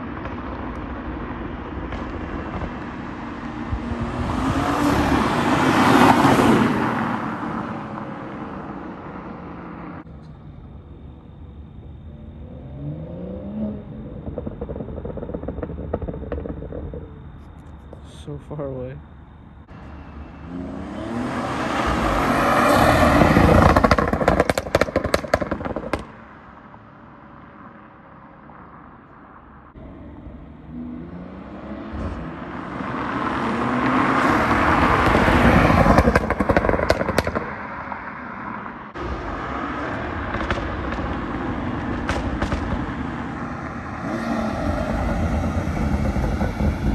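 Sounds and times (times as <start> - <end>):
exhaust crackles: 12.4 - 19.0, 20.1 - 26.5, 29.8 - 37.8, 39.0 - 46.9
car driving past under throttle: 19.7 - 26.7, 29.7 - 46.9.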